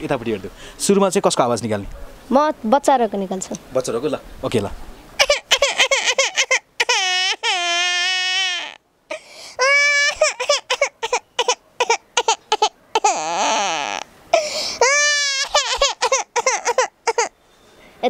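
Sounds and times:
boy imitating baby crying: 5.2 - 17.3.

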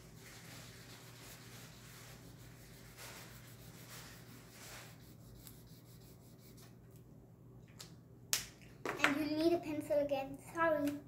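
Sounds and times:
marker rubbing on paper: 0.0 - 6.8.

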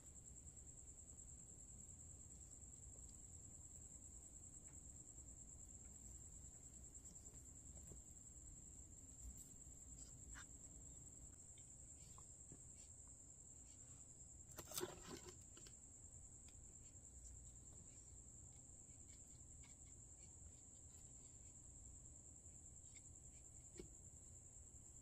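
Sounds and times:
faint high-pitched whine: 0.0 - 25.0
handling rustle and clatter: 14.4 - 15.8.

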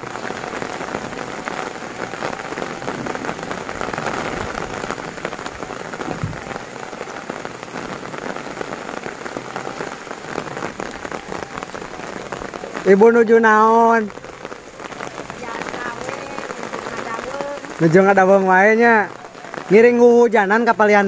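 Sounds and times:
heavy rain on roofs and leaves: 0.0 - 21.0.

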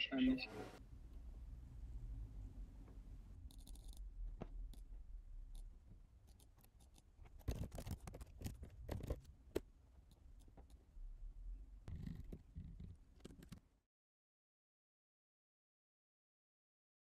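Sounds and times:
low room hum: 0.0 - 13.8
computer keyboard typing: 6.3 - 9.3.

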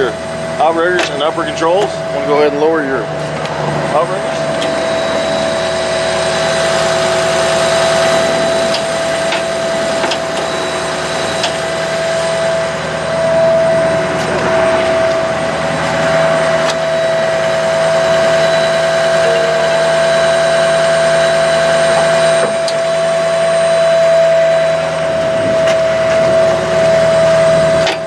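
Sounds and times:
truck hydraulic system whine: 0.0 - 28.0.

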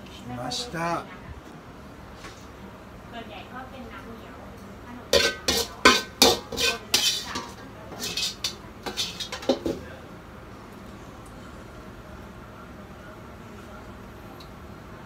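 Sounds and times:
metal utensils clinking on dishes: 5.1 - 9.9.

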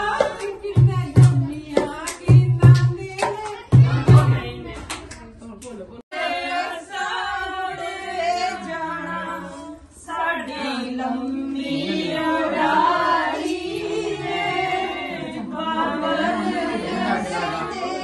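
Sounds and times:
women singing unaccompanied: 0.0 - 5.4, 6.1 - 18.0.

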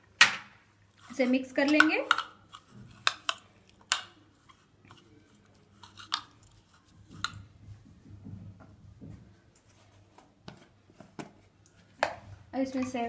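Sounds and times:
spoon stirring chopped vegetables: 0.9 - 7.5, 11.8 - 13.0.

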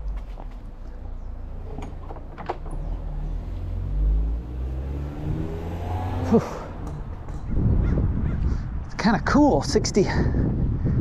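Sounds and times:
car accelerating: 2.6 - 8.3
wind rumbling on microphone: 5.2 - 11.0.

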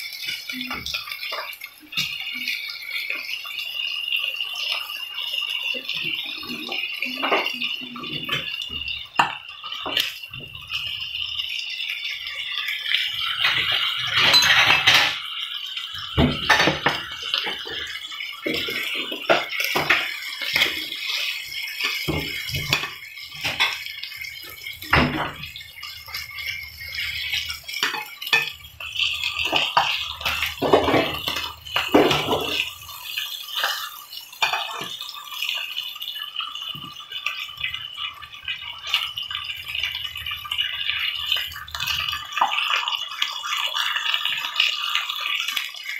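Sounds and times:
steak sizzling in a pan: 0.0 - 45.9
metal fork scraping a pan: 26.1 - 28.6.

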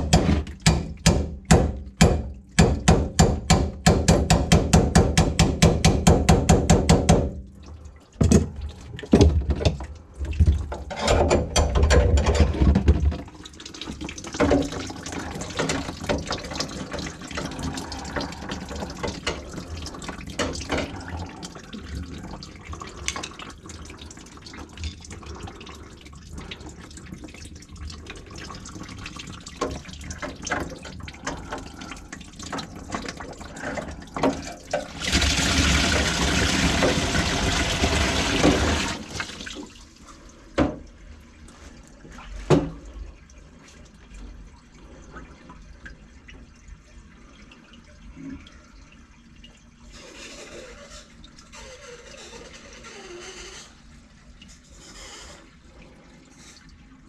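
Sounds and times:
sharp knocks: 0.0 - 7.4
water dripping into a bucket: 0.0 - 12.3, 12.9 - 49.9
water pouring into a bucket: 11.8 - 40.4.

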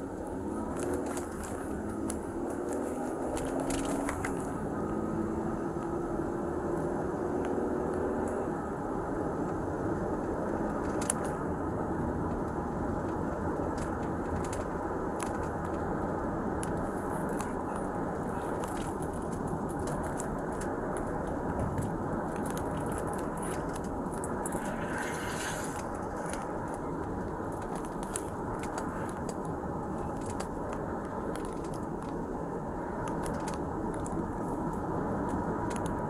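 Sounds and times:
steady low rumble: 0.0 - 7.2, 8.3 - 36.0
clothing rubbing against microphone: 23.2 - 26.6.

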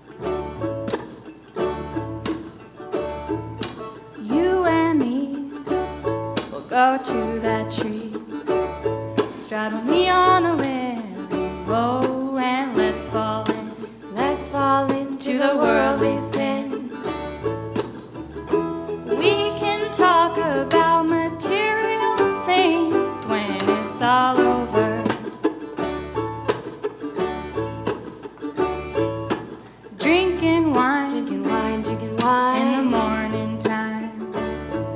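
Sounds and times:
plucked strings: 0.0 - 34.9
women singing: 4.2 - 5.6, 6.5 - 8.3, 9.3 - 17.0, 19.1 - 25.2, 29.9 - 34.2.

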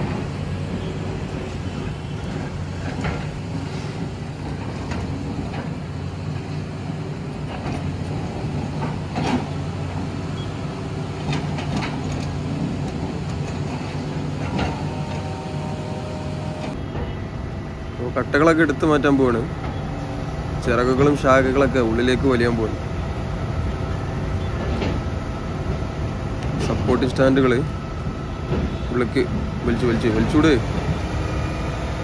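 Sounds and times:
diesel engine running: 0.0 - 32.0
sharp knocks and clanks: 7.4 - 9.6.

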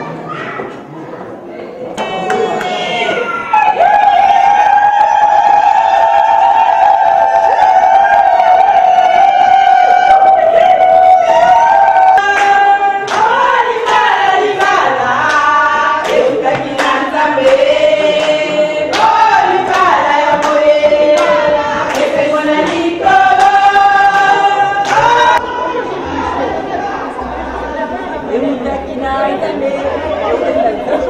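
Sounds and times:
group of voices singing: 2.0 - 31.0
sharp percussive beats: 12.5 - 25.4.

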